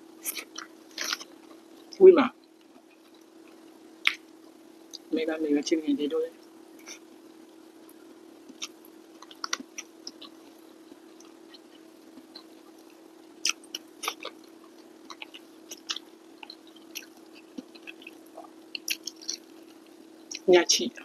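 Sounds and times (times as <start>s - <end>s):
person chewing: 0.2s - 4.2s, 8.4s - 20.4s.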